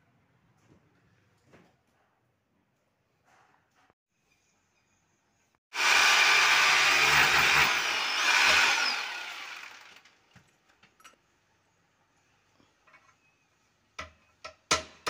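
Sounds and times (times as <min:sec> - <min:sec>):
electric drill boring into masonry: 0:05.7 - 0:10.2.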